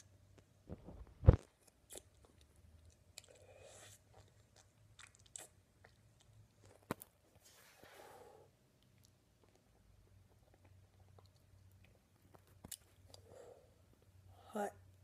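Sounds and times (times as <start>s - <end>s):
soft breath: 7.4s - 8.6s, 13.1s - 14.6s.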